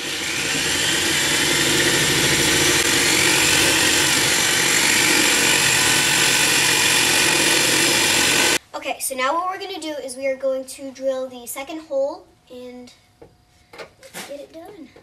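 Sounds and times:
electric drill boring through steel: 0.0 - 8.6.

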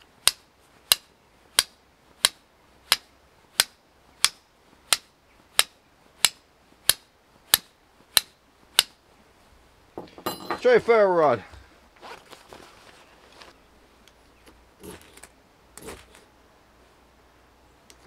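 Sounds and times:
steel striker clicking on flint: 0.2 - 9.0.

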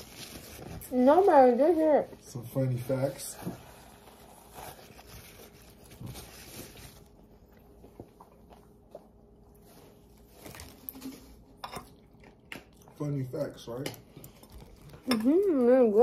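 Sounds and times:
paper napkin rustling: 0.0 - 2.0, 2.9 - 7.2.

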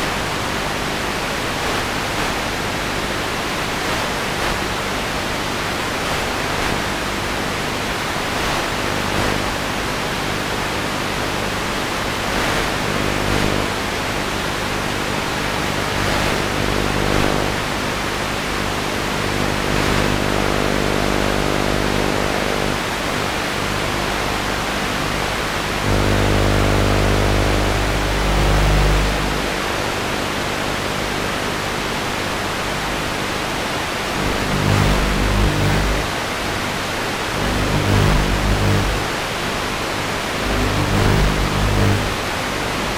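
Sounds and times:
static hiss: 0.0 - 42.9
low buzzing hum: 8.9 - 9.6, 12.4 - 31.6, 34.0 - 36.3, 37.2 - 39.3, 40.2 - 42.4.

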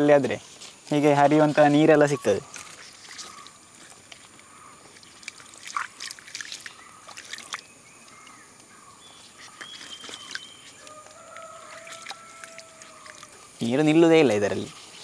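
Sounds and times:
stream water trickling: 0.7 - 15.0
bird calls: 1.7 - 15.0
hands splashing leaves in water: 4.9 - 8.4, 9.5 - 14.0.

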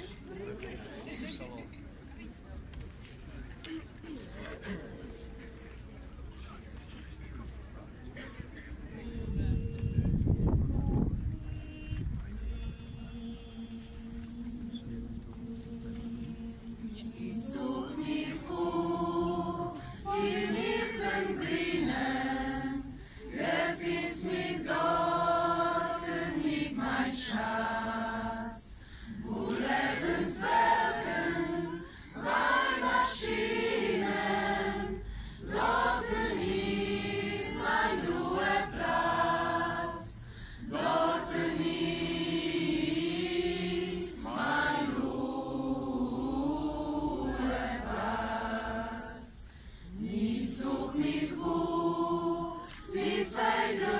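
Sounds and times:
group singing in unison: 12.9 - 53.9.

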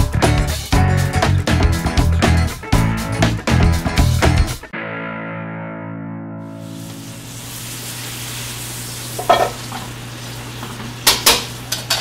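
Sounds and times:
sizzling hiss: 6.6 - 11.8.

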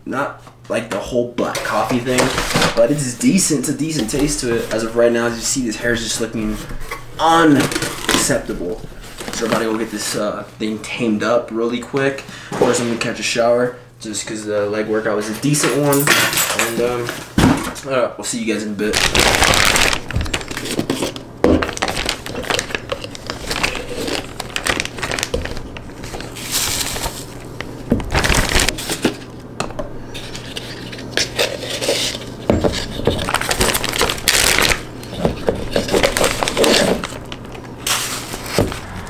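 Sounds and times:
plastic bags crinkling: 18.8 - 29.3, 30.2 - 39.0.

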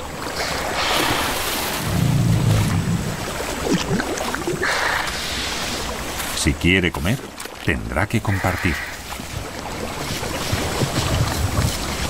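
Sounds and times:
water splashing and sloshing: 0.0 - 12.0
deep low rumble: 1.8 - 4.0.

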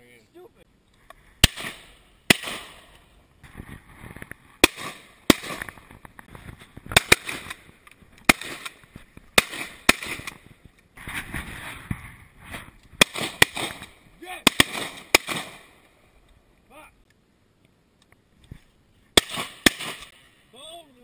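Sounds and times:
shotguns firing: 1.4 - 3.0, 4.6 - 5.8, 6.9 - 10.4, 13.0 - 15.8, 19.2 - 20.3.

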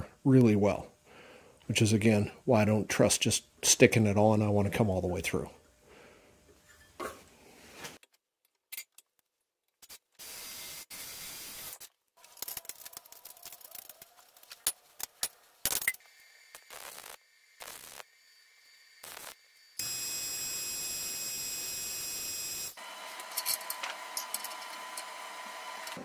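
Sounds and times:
short hissing bursts: 16.1 - 19.5.

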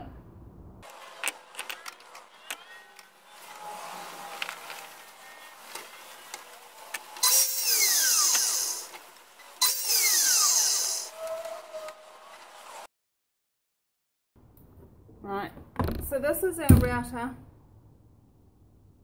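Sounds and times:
mitre saw cutting wood: 3.0 - 12.9
saw motor whine spinning down: 7.2 - 9.0, 9.6 - 11.2.

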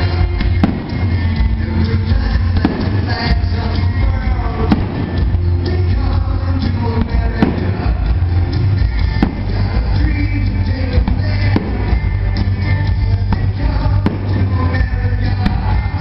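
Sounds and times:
firework bangs: 0.0 - 1.6, 2.4 - 3.7, 4.3 - 6.0, 6.7 - 10.3, 11.0 - 12.1, 13.3 - 15.9
loud music with heavy bass: 0.0 - 16.0.

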